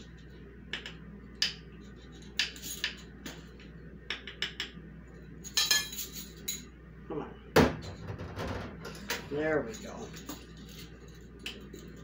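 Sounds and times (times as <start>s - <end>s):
metal measuring spoons clinking: 5.4s - 6.7s.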